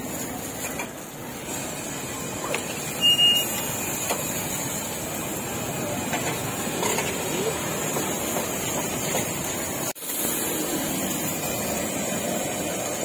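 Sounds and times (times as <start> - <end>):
street food stall din: 0.0 - 13.0
short high squeal: 2.9 - 3.6.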